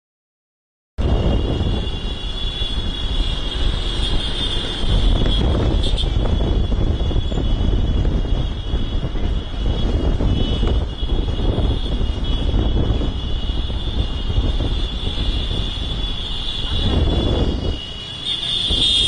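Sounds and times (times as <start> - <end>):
truck engine: 1.0 - 6.4
crowd on foot: 1.0 - 19.0
motorcycle engines: 1.0 - 19.0
wind buffeting microphone: 1.0 - 19.0.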